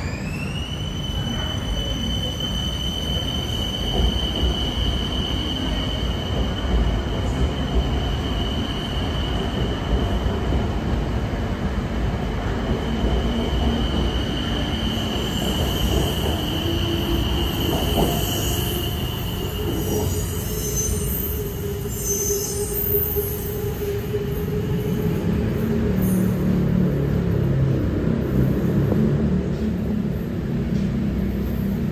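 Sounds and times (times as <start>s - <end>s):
electric train rumbling: 0.0s - 31.9s
high whine of train: 0.0s - 31.9s.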